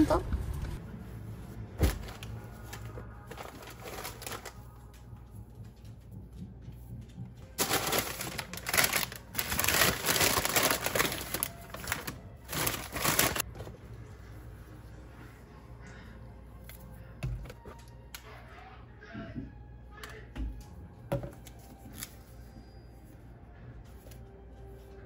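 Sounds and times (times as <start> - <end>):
paper bag rustling and crinkling: 1.7 - 4.8, 7.5 - 13.8.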